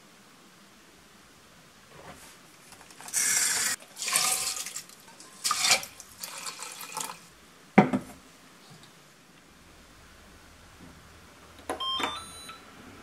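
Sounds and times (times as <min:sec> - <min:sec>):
rice and water pouring: 0:02.9 - 0:07.4
knock: 0:07.8 - 0:08.1.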